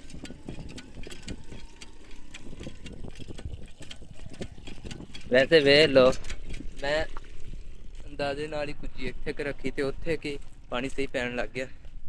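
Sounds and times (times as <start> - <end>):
hand pump clanking and clicking: 0.0 - 7.4
water falling into clay pot: 0.0 - 8.4.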